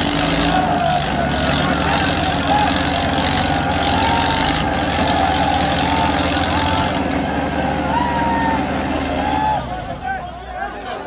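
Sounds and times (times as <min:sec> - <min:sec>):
crowd shouting: 0:00.0 - 0:11.0
tractor diesel engine running: 0:00.0 - 0:11.0.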